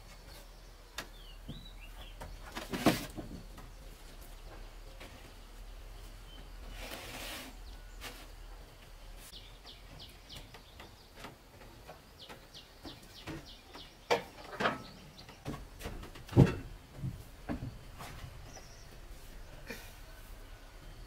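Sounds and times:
sharp knocks and thumps: 1.0s - 3.8s, 9.8s - 18.8s.

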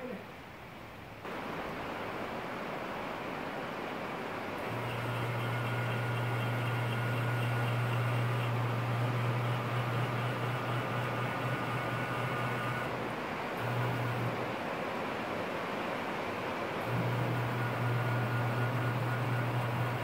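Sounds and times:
electric servo motor humming: 4.6s - 13.0s.

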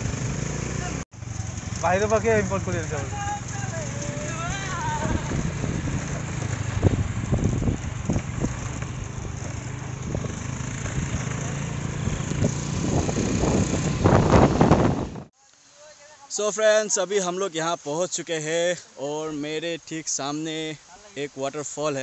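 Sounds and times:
motorbike engine running: 0.0s - 15.2s
rushing air: 4.4s - 15.3s.

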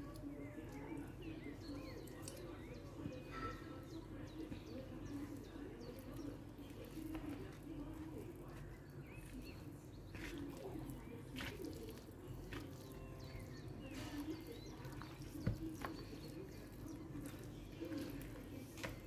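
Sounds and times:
birds calling: 0.0s - 19.0s
hands squishing raw chicken: 4.4s - 19.0s.

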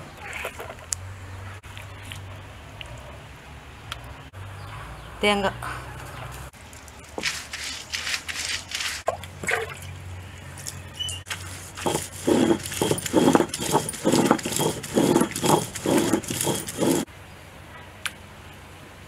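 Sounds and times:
stone roller grinding on stone: 11.3s - 17.1s.

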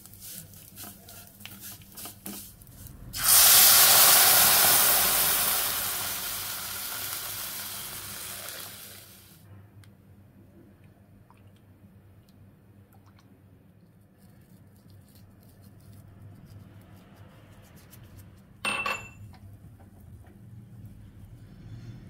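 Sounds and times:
sharp ringing clink: 18.7s - 19.3s.

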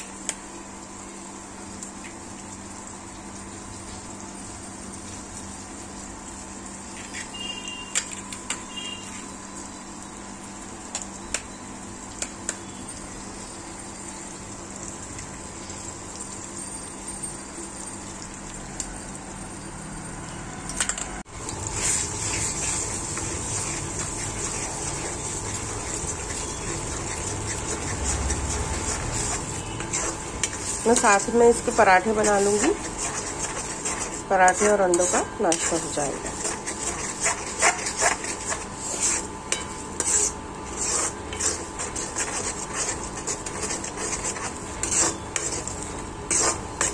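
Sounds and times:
eggs sizzling in a pan: 0.0s - 19.2s, 21.2s - 46.9s
spoon scraping a pan: 7.0s - 9.3s, 21.6s - 46.9s.

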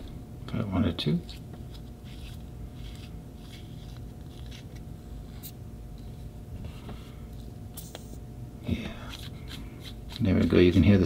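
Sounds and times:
steady low hum: 0.0s - 11.0s
pen plunger rubbing and scraping: 9.1s - 11.0s.

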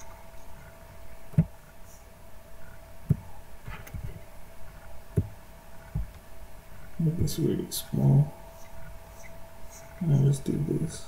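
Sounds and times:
faint electrical hum: 0.0s - 11.0s
soft low thumps: 0.6s - 1.8s, 2.6s - 7.6s.

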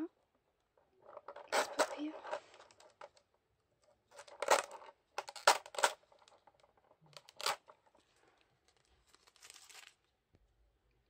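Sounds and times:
plastic packaging crinkling: 8.6s - 10.1s.

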